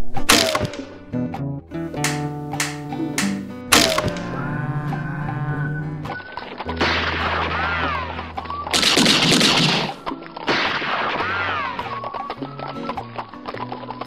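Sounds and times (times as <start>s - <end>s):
low bass music: 0.5s - 10.2s
rapid gunshot bursts: 8.7s - 11.5s.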